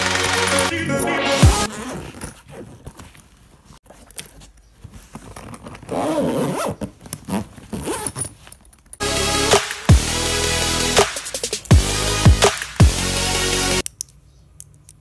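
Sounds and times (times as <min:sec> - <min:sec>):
background music: 0:00.0 - 0:01.7, 0:09.0 - 0:13.8
backpack zipper pulled open: 0:01.6 - 0:03.2, 0:05.2 - 0:08.5.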